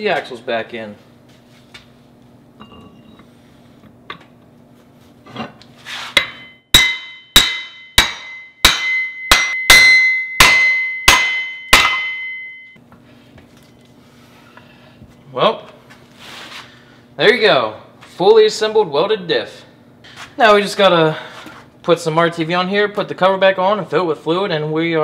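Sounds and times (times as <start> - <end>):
hammer striking steel axle: 6.2 - 12.8.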